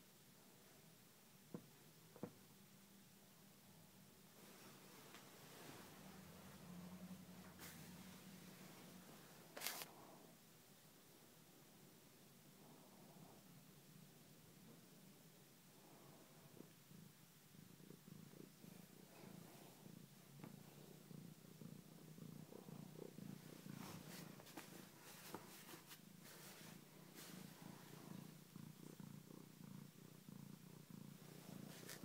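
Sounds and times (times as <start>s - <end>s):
cat purring: 0.1s - 32.0s
rustling of bedding: 23.3s - 28.3s.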